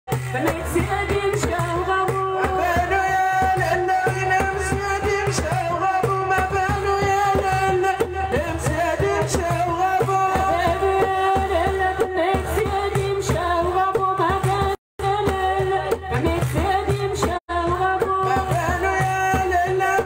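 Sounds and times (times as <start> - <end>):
steady drum beat: 0.1 - 20.0.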